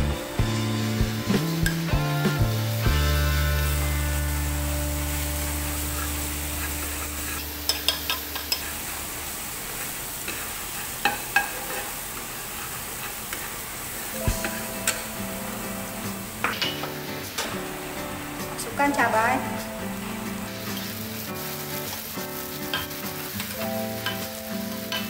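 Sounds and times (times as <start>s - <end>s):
garlic sizzling in oil: 0.0s - 25.0s
low background music note: 14.2s - 20.6s.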